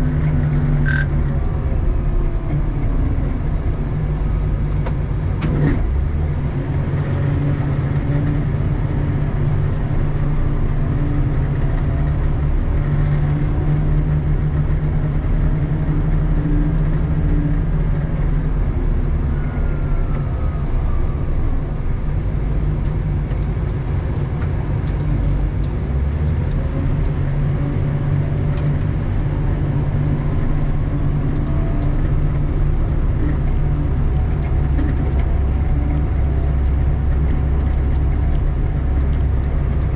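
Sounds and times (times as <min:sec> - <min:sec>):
wheel loader diesel engine: 0:00.0 - 0:39.9.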